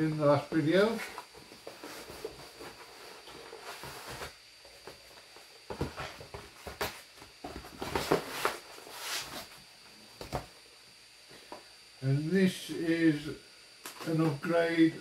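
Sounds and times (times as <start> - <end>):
cardboard rustling and scraping: 0.7 - 10.6.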